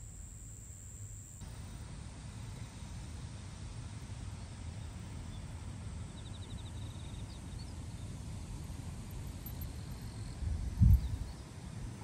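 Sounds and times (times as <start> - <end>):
low wind rumble on microphone: 3.8 - 12.0.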